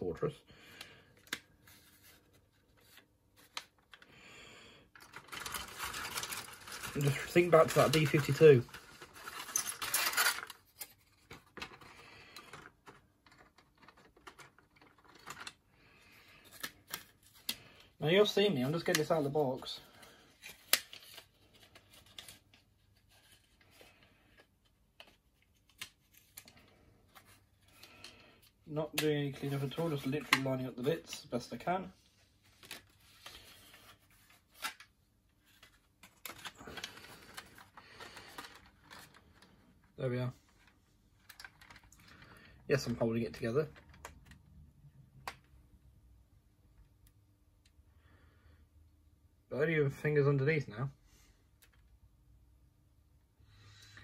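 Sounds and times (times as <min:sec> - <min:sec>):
plastic parts rustling and clicking: 0:04.9 - 0:15.7, 0:32.5 - 0:39.6, 0:40.5 - 0:44.5.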